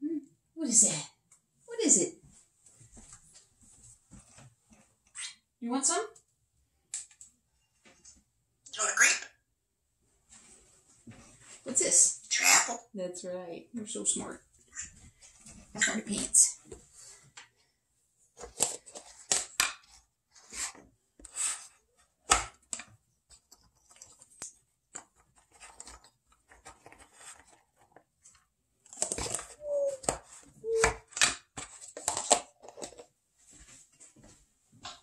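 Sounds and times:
parrot squeaks: 29.6 - 30.9.

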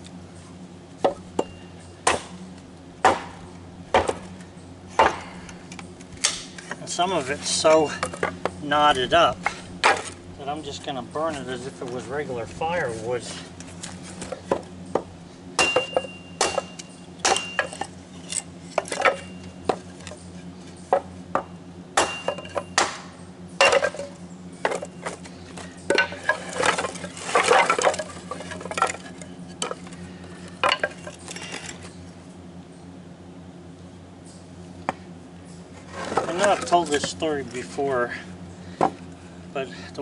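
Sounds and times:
wooden boards knocking together: 25.9 - 30.0.

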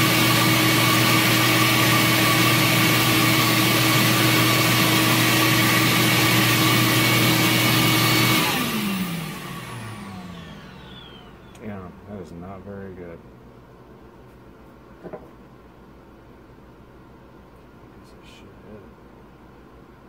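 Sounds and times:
flow bench humming and whining: 0.0 - 15.4
motors winding down: 7.4 - 11.8.

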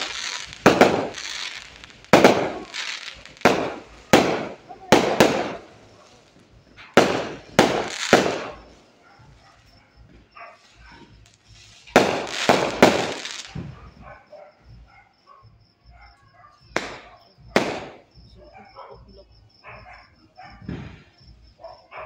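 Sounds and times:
fireworks crackling: 0.0 - 14.1, 16.7 - 18.4, 20.6 - 21.5
fireworks bangs: 0.0 - 14.9, 16.6 - 19.1, 20.6 - 21.6.

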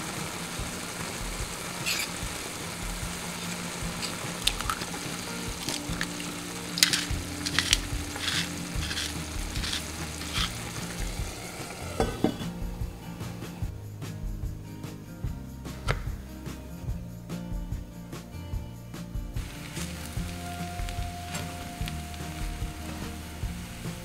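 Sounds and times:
food sizzling in a pan: 0.0 - 13.7, 19.4 - 24.0
utensil tapping and scraping pan: 4.0 - 10.8.

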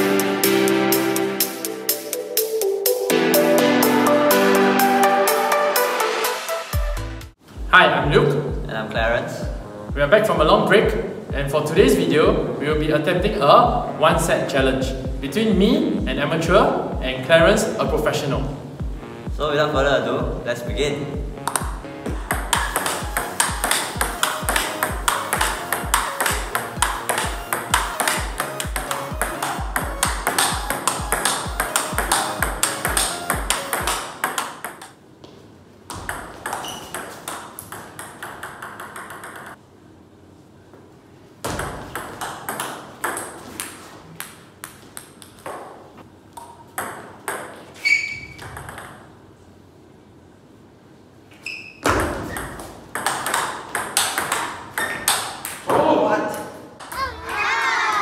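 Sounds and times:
music with steady beat: 0.0 - 34.2
table tennis ball clicking: 22.3 - 35.0, 36.0 - 39.6.

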